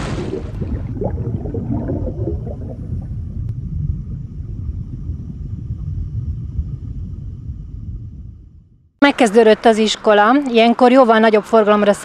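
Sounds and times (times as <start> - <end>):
bubbling: 0.0 - 8.6
deep underwater rumble: 0.0 - 9.0.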